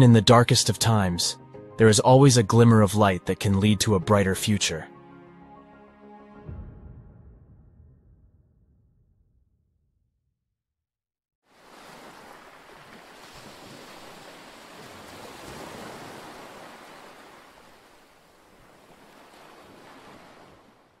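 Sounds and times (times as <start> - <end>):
ocean waves breaking: 11.5 - 21.0.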